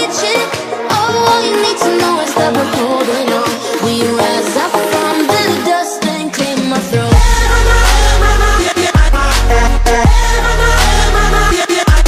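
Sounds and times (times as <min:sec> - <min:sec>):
electronic dance music: 0:00.0 - 0:12.0
deep bass downward slide: 0:07.1 - 0:11.6.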